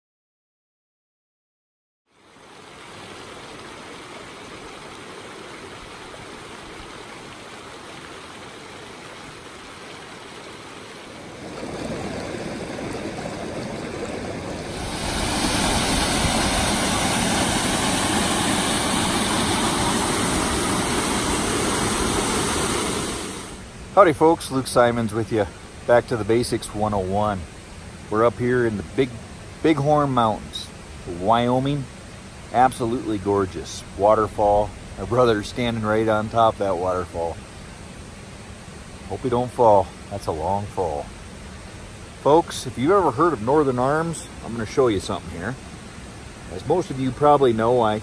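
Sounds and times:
creek water rushing: 2.1s - 48.0s.

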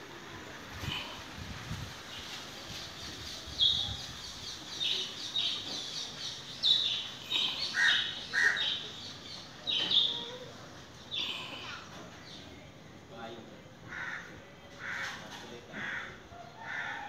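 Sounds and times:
birds chirping: 3.0s - 12.7s.

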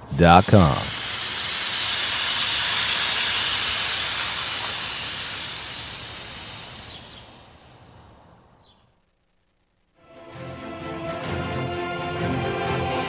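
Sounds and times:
hissing whoosh sound effect: 0.0s - 8.1s.

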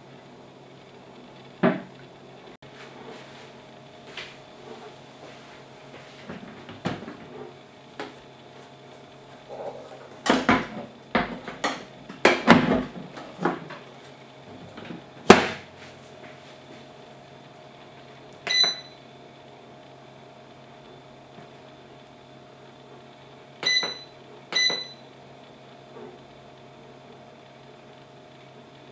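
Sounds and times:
short electronic beep: 18.5s - 19.0s, 23.6s - 25.0s.

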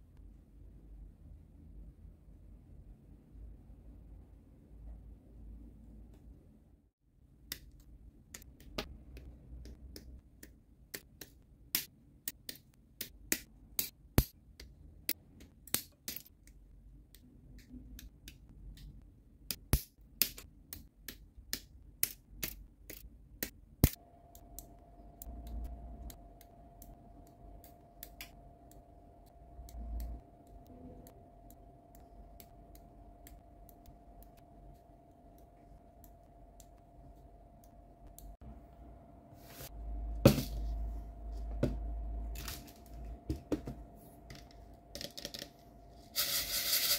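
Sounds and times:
faint steady hum: 22.7s - 46.9s.

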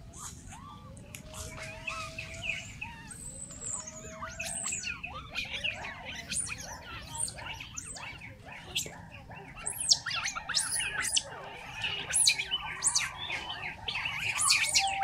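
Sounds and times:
birds chirping: 0.0s - 15.0s
long slowly rising bird whistle: 14.4s - 15.0s.

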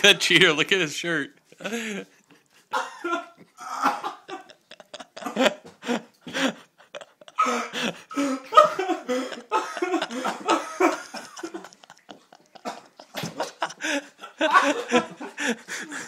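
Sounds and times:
man laughing: 1.5s - 16.0s
man coughing harshly: 2.7s - 4.5s, 8.6s - 11.2s.

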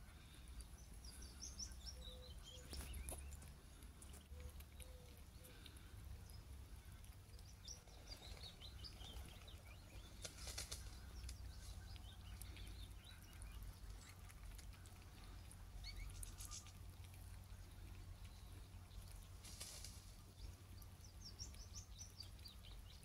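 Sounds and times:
soft rustles: 10.0s - 11.8s, 19.3s - 20.3s.

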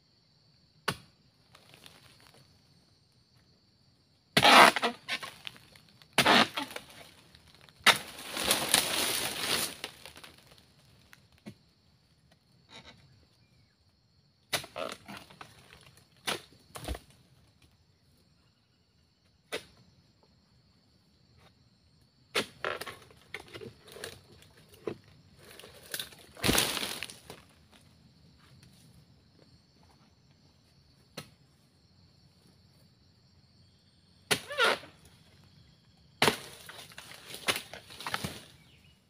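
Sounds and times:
insect buzz: 0.0s - 39.0s
chisel chopping into stalks: 7.8s - 10.2s, 25.9s - 27.2s, 36.2s - 38.4s
heavy thuds on ground: 26.3s - 27.4s.

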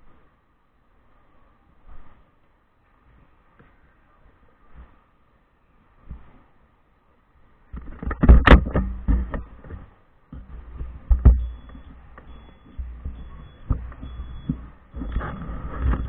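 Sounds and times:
knocks and rubbing on camera: 7.7s - 16.0s.

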